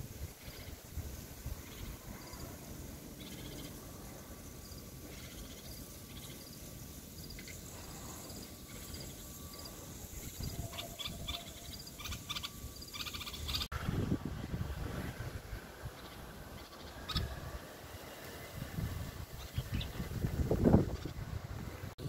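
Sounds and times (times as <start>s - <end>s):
bird chirping: 3.2s - 3.8s, 4.6s - 13.7s, 16.0s - 17.4s.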